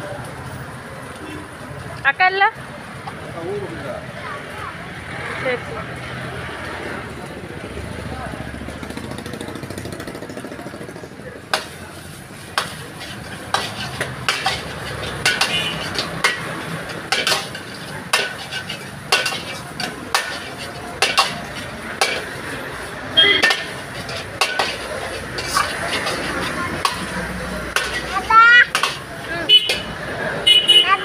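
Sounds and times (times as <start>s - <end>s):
metal ladle clanking against wok: 11.5s - 11.8s, 12.5s - 22.6s, 23.2s - 29.9s
food sizzling: 11.5s - 30.1s.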